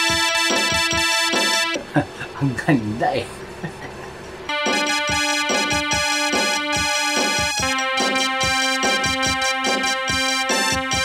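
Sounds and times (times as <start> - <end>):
music with chords over beat: 0.0 - 1.8, 4.5 - 11.0.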